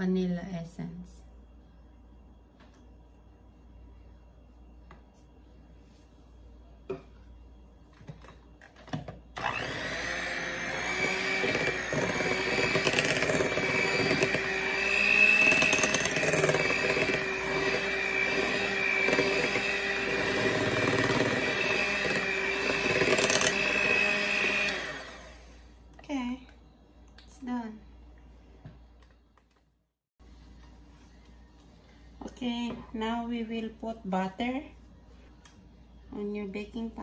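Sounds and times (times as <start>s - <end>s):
electric hand mixer whirring: 9.4s - 25.6s.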